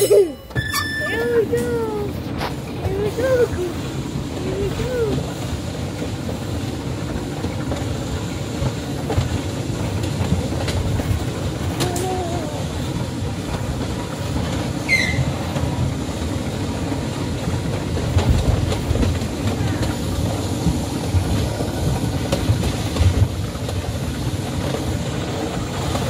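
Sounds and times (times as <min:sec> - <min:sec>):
high squeak: 0:00.0 - 0:01.3
ride car rumbling on track: 0:00.0 - 0:26.0.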